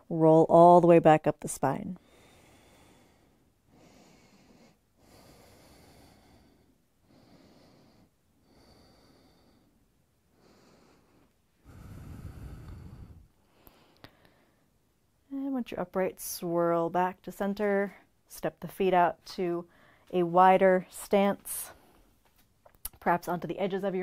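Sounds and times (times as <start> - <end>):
person breathing: 2.0 - 14.8, 19.7 - 20.1.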